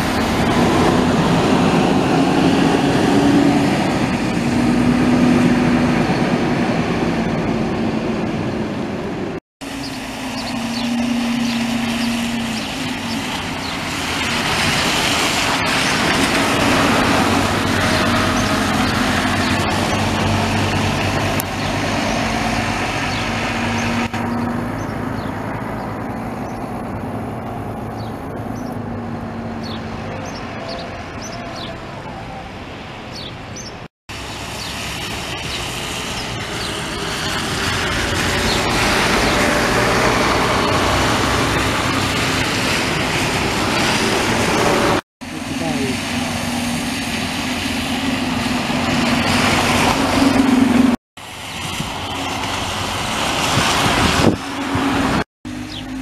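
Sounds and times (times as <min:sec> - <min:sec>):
bus engine drone: 0:00.0 - 0:56.0
tyre hiss on wet road: 0:09.6 - 0:21.2, 0:34.1 - 0:55.2.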